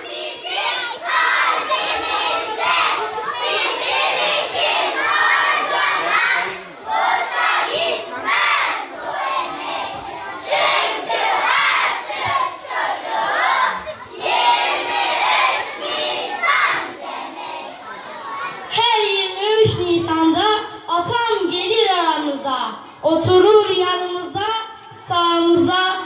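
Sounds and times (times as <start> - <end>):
children chanting in chorus: 0.0 - 18.7.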